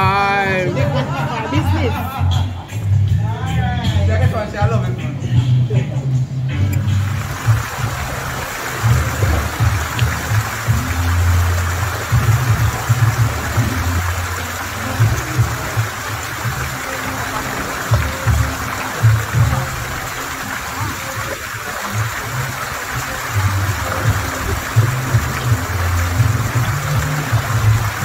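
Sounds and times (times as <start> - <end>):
music with deep bass: 0.0 - 28.0
waterfall pouring into pool: 6.7 - 28.0.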